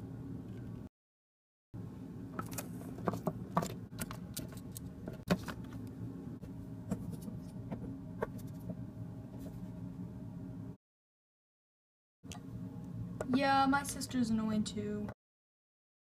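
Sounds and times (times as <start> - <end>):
steady low hum: 1.8 - 10.8, 12.3 - 15.2.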